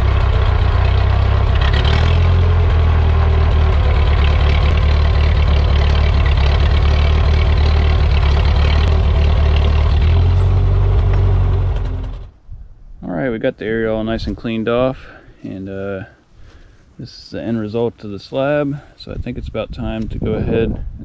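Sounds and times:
tractor engine running: 0.0s - 12.4s.

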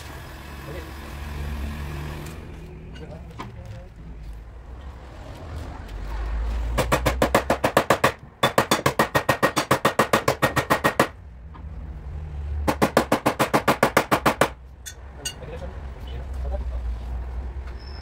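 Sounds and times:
power tool hammering metal: 6.8s - 11.2s, 12.6s - 15.4s.

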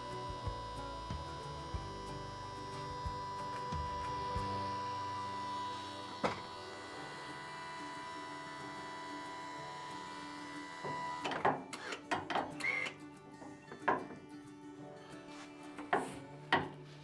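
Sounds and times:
hydraulic pump humming: 0.0s - 13.0s.

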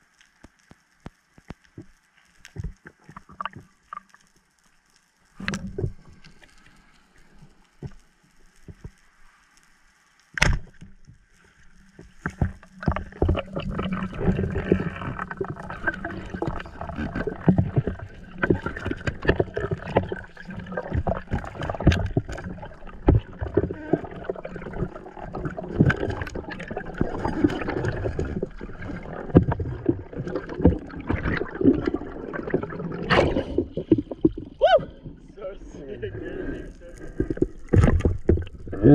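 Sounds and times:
sharp underwater crack: 10.4s - 10.9s, 25.6s - 35.2s, 37.1s - 38.9s
water sloshing: 12.4s - 35.7s, 36.9s - 38.9s.

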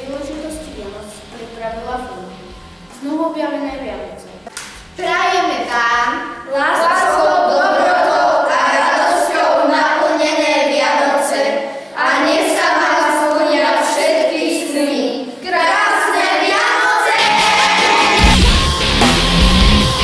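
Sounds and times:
children singing unaccompanied: 5.0s - 18.3s
loud music with heavy beat: 17.1s - 20.0s.

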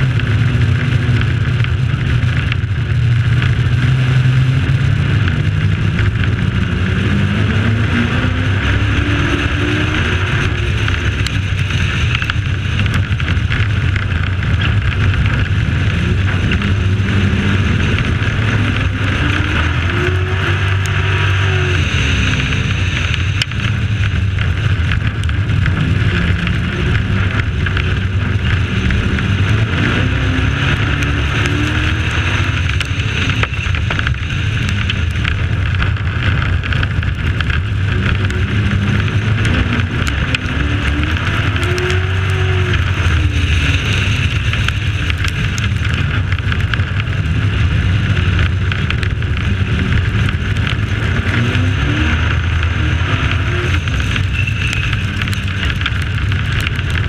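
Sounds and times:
race truck engine running hard: 0.0s - 57.0s
steady rushing noise: 0.0s - 57.0s.

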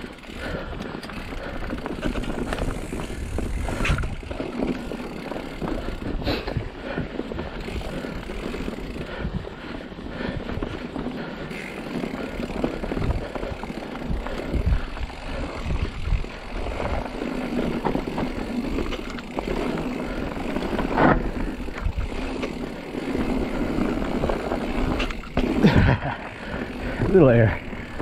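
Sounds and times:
bike rattling and clunking: 0.0s - 28.0s
bike tyres on dirt: 0.0s - 28.0s
wind on microphone: 14.0s - 17.2s.

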